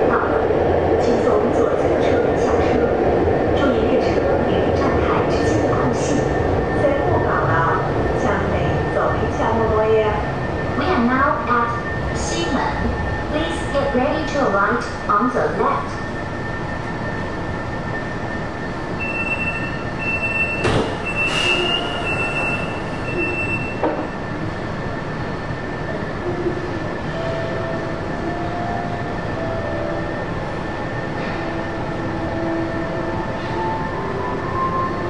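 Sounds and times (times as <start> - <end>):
train hum: 0.0 - 35.0
train rumbling in tunnel: 0.0 - 35.0
train wheel squeal: 18.9 - 23.9.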